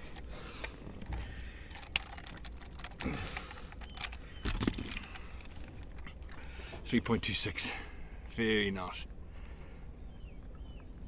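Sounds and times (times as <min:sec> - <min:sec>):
metal and plastic clicks and rattles: 0:00.0 - 0:06.4.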